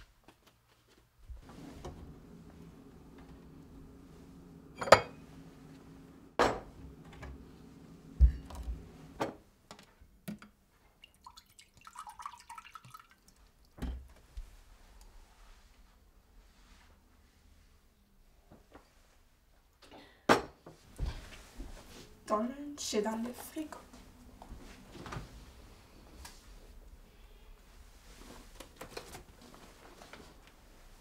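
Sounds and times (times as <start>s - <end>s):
low steady hum: 1.3s - 9.3s
glass set on counter: 4.8s - 5.2s
juice pouring into glass: 11.1s - 13.4s.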